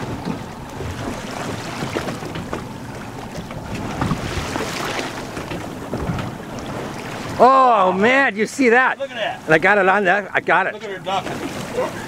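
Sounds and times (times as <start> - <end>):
wind buffeting microphone: 0.0 - 7.4
water slapping and splashing: 0.0 - 12.0.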